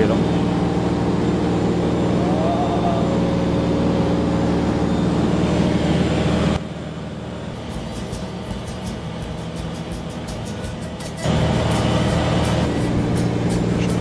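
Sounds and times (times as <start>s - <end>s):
aircraft engine droning: 0.0s - 14.0s
regular beat: 7.6s - 14.0s.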